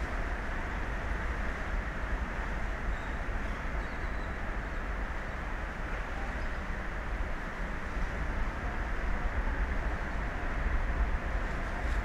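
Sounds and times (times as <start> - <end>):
rushing wind: 0.0 - 12.0.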